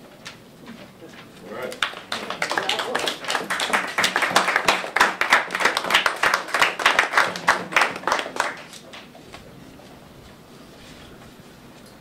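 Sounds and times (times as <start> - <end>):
audience applauding: 1.7 - 9.1.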